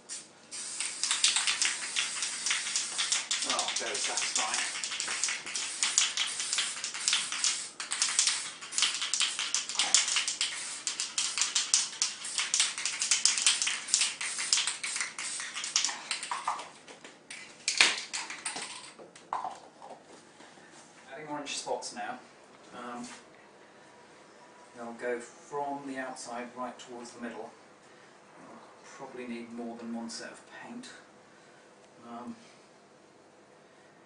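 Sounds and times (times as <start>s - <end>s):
spray paint can clicks and hiss: 0.1s - 19.5s.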